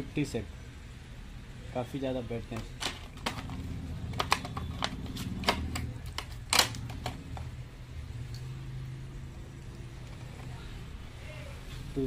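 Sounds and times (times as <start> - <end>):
plastic packaging clicking and crackling: 2.5 - 7.5.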